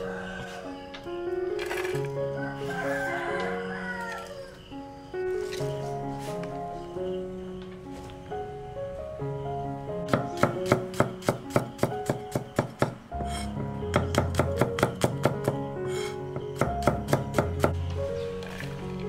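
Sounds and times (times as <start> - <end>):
cleaver knocking on chopping board: 10.1 - 13.3, 13.9 - 15.6.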